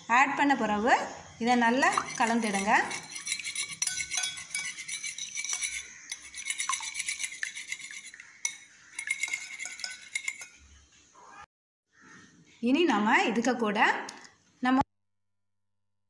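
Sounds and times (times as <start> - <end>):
whisk beating eggs in glass bowl: 1.8 - 10.6.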